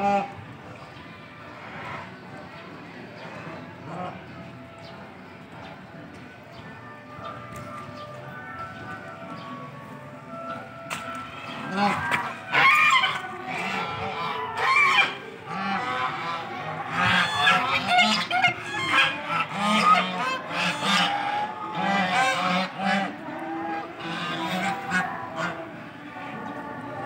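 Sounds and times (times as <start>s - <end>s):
geese honking: 8.4s - 27.0s.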